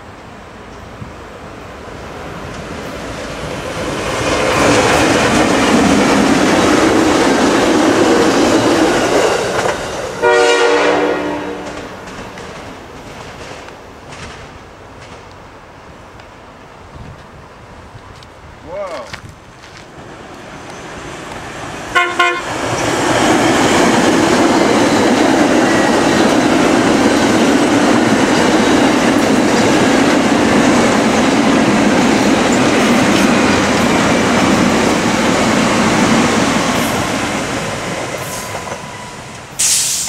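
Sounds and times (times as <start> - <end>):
train rushing past on rails: 0.0 - 18.6, 19.2 - 40.0
train horn toot: 10.2 - 11.9, 21.9 - 22.5.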